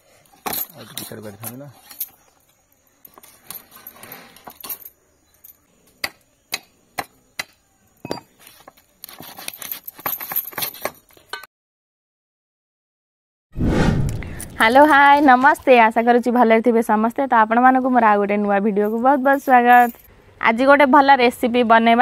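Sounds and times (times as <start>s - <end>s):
scraping and handling: 8.1s - 11.3s.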